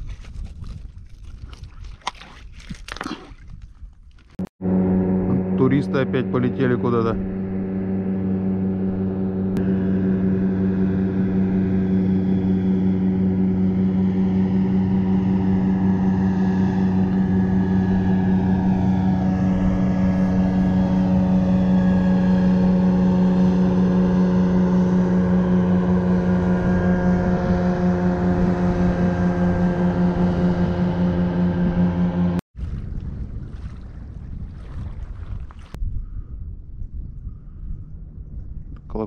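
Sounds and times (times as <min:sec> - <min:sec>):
airboat engine droning: 0:04.4 - 0:32.8.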